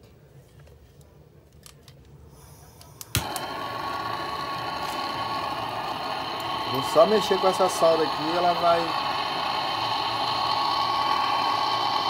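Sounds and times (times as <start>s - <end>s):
gas torch flame hissing: 2.3s - 12.0s
gas torch igniter click: 2.9s - 12.0s.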